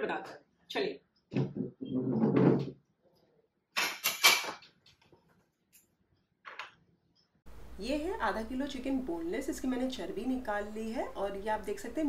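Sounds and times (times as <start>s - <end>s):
chair scraping and knocking: 1.3s - 2.8s.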